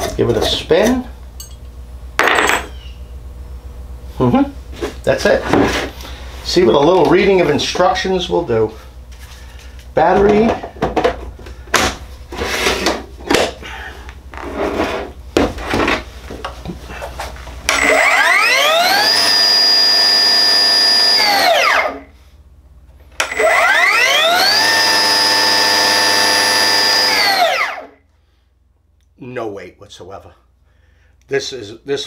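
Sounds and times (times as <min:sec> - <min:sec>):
cut-off saw motor whining: 0:17.7 - 0:22.1, 0:23.2 - 0:28.0.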